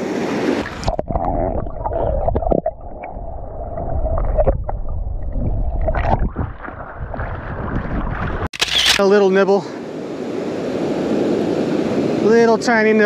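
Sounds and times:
surf at shoreline: 0:00.0 - 0:01.0, 0:06.5 - 0:13.0
wind rumbling on microphone: 0:00.0 - 0:08.5
short clicks: 0:08.5 - 0:09.0.

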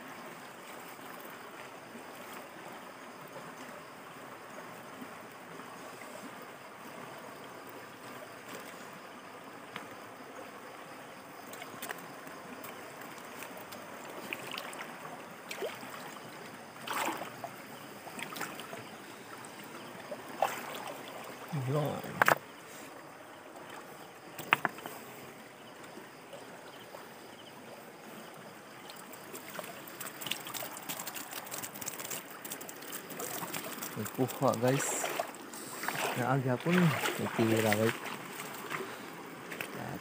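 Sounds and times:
river water rushing: 0:00.0 - 0:40.0.

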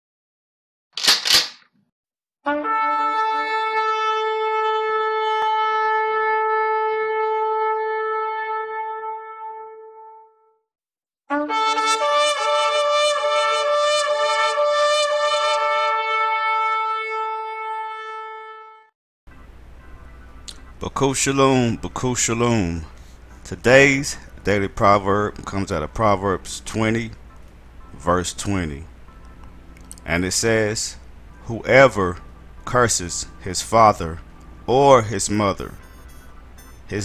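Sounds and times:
shofar blasts: 0:02.5 - 0:10.3, 0:11.3 - 0:18.9.

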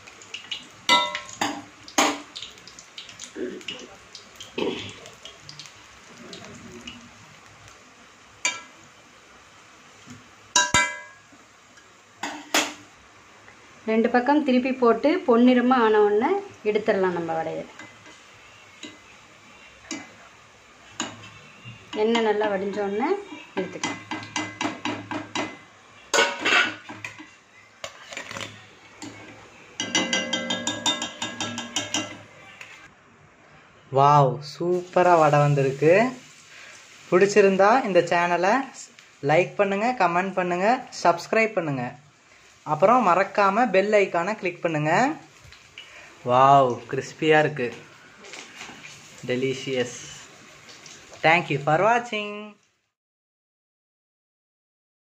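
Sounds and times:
food sizzling in hot oil: 0:00.0 - 0:32.9, 0:34.4 - 0:52.5
metal spatula clanking on pan: 0:00.9 - 0:02.3, 0:08.4 - 0:08.7, 0:10.5 - 0:11.2, 0:23.6 - 0:27.3, 0:28.4 - 0:32.3.

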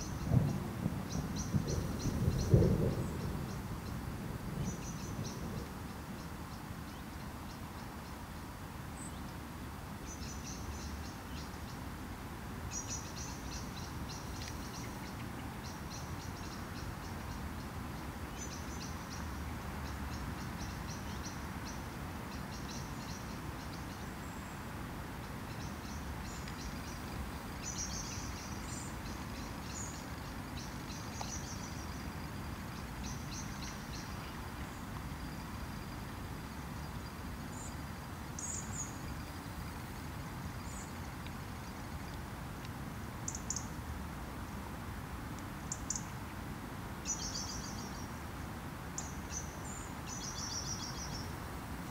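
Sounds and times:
small birds chirping: 0:25.2 - 0:36.0, 0:47.0 - 0:48.2, 0:48.9 - 0:51.9.

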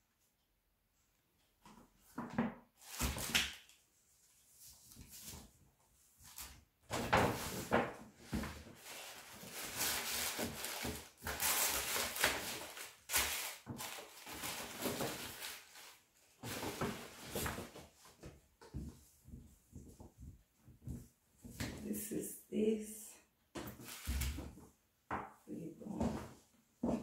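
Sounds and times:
tissue paper rustling: 0:07.3 - 0:18.0.

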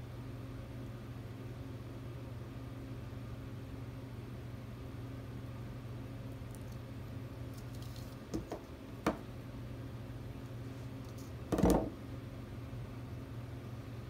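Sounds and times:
steady low hum: 0:00.0 - 0:14.0
knock on tabletop: 0:11.5 - 0:12.0.

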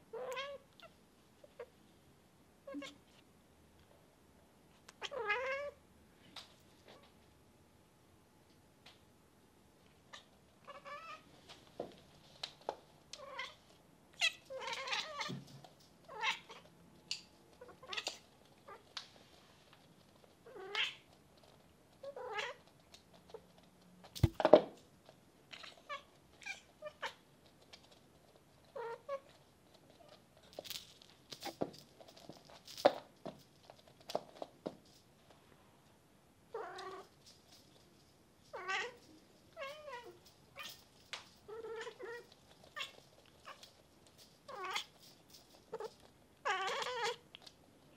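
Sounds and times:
cats meowing and chirping: 0:14.2 - 0:15.4, 0:45.7 - 0:47.3.

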